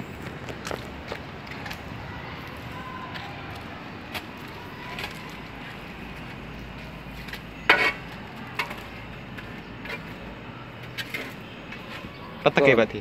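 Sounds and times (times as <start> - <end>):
footsteps on leafy paved path: 0.0 - 13.0.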